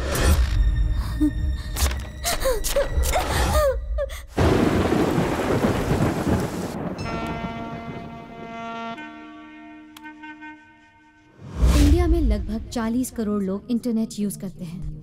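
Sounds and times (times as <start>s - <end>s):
heavy rain: 4.4s - 8.4s
thunder: 4.4s - 8.5s
held musical chord: 7.0s - 11.3s.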